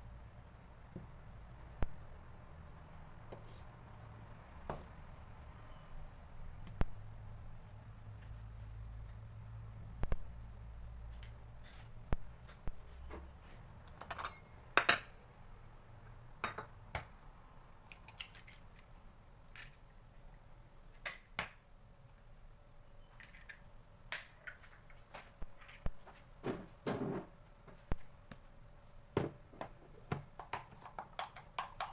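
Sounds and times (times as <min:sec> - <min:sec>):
eggs cracking over a bowl: 0:17.8 - 0:19.8.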